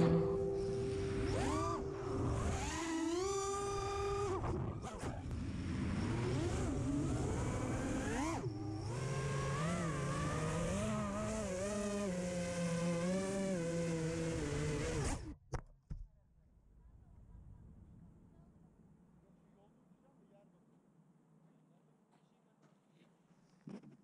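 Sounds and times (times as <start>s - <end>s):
quadcopter motors whining: 0.0s - 15.3s.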